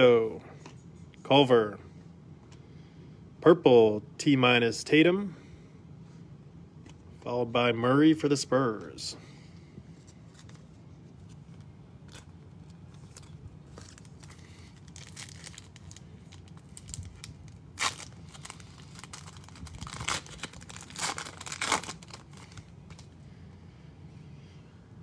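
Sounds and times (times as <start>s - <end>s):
foil wrapper tearing and crinkling: 10.3s - 23.2s.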